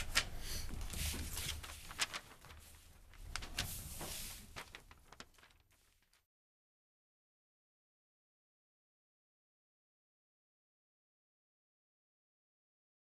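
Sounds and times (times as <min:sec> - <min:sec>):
people rustling and moving about: 0:00.0 - 0:06.2.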